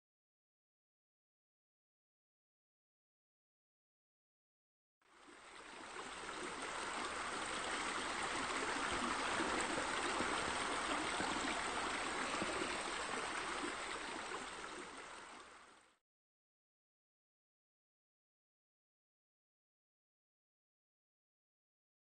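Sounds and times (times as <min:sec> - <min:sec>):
flowing splashing water: 0:05.1 - 0:16.0.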